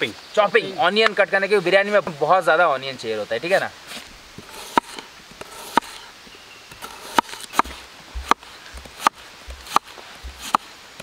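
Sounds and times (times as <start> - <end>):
knife chopping on cutting board: 7.0 - 10.6.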